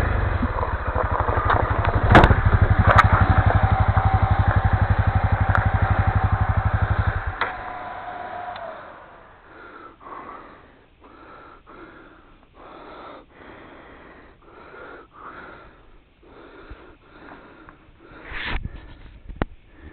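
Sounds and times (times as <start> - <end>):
person breathing hard: 9.2 - 19.9.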